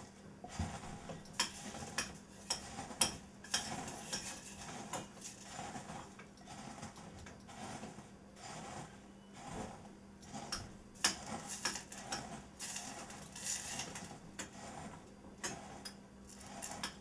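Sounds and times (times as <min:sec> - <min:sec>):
crackers crunching by hand: 0:10.3 - 0:14.9.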